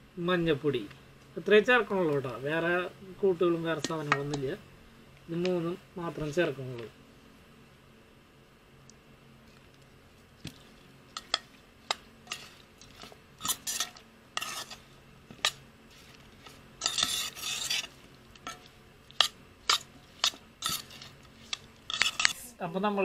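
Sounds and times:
wet scraping rubs: 10.4 - 22.5.

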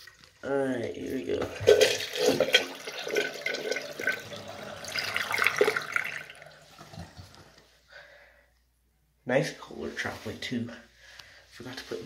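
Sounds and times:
toilet water rushing and gurgling: 0.9 - 7.6.

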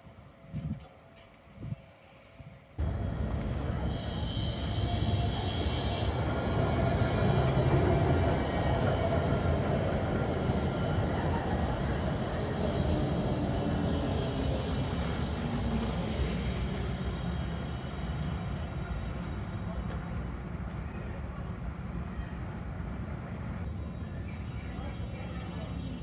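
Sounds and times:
tram rolling rumble: 0.0 - 26.0.

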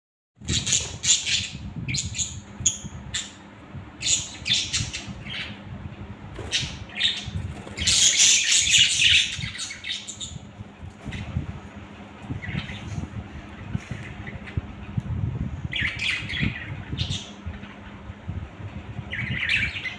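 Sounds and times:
budgerigars chirping and chattering: 0.4 - 3.4, 4.0 - 5.6, 6.4 - 10.4, 12.2 - 14.6, 15.7 - 17.8, 19.1 - 19.9
steady low hum: 0.4 - 19.9
wings flapping: 6.3 - 8.2.

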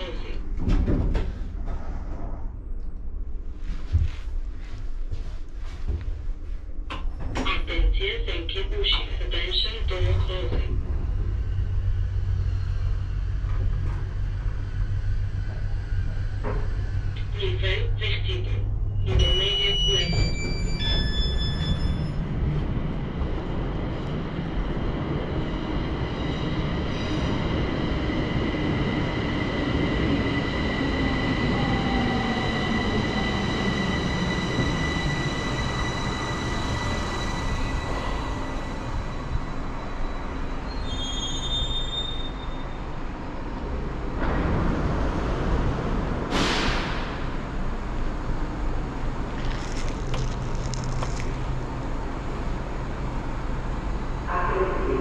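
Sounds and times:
metro train rumbling: 0.0 - 55.0.

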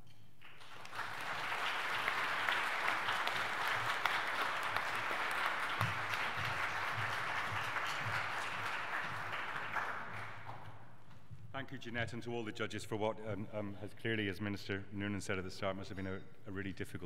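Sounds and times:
audience applauding: 0.4 - 10.7.

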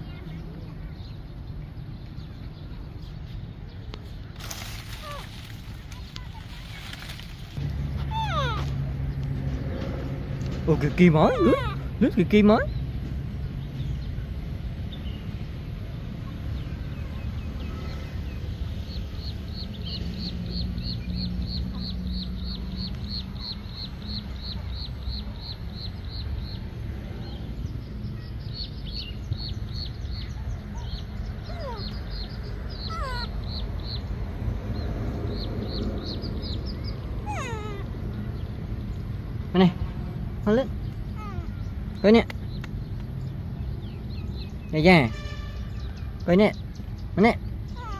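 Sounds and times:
animal high chirps: 8.0 - 8.7, 31.4 - 34.0, 37.2 - 37.9.

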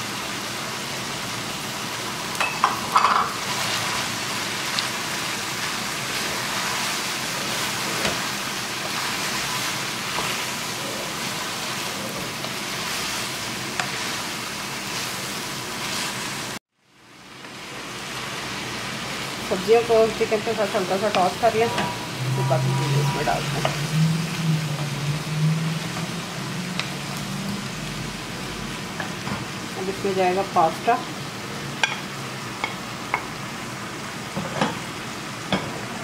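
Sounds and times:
food sizzling in a wok: 0.0 - 36.0.

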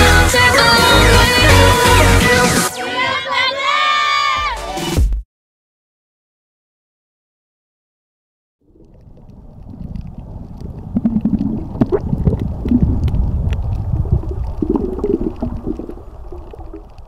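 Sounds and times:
low rumble: 8.6 - 17.0
underwater bubbling and gurgling: 8.6 - 17.0.

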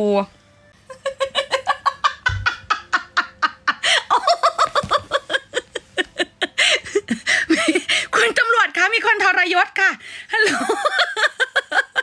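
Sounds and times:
woman laughing hard: 0.9 - 8.1, 10.3 - 12.0.

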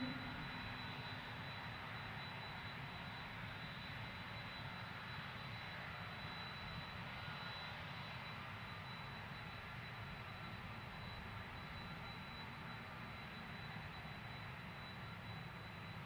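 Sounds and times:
low engine rumble: 0.0 - 0.8
jet engines high whine: 0.0 - 16.0.

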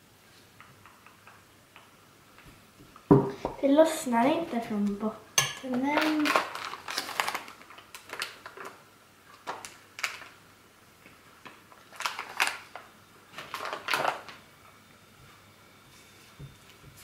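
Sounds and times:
paper bag crinkling: 5.8 - 10.4, 11.7 - 14.4.

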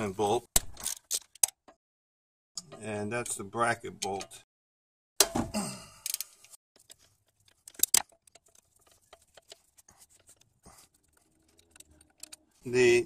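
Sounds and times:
small handling clicks and rubbing: 0.6 - 1.8, 6.0 - 12.9.

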